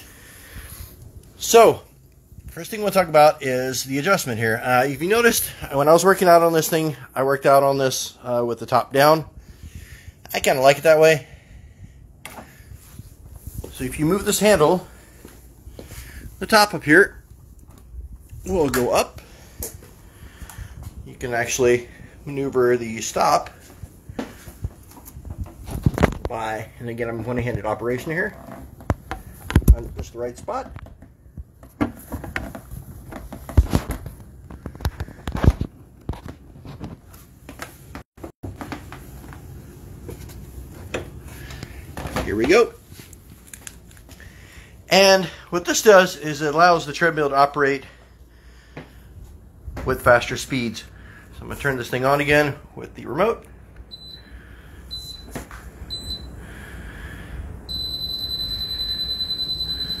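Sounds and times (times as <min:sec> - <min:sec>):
handling noise rustling and clicking: 0:27.4 - 0:44.2
treadmill beeping: 0:53.9 - 0:54.3, 0:54.9 - 0:56.4, 0:57.7 - 1:00.0
treadmill motor whine: 0:57.7 - 1:00.0.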